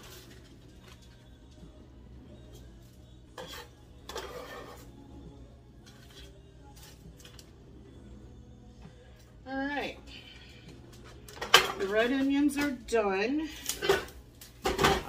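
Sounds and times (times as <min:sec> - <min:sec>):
scraper scraping cutting board: 0:03.4 - 0:04.9.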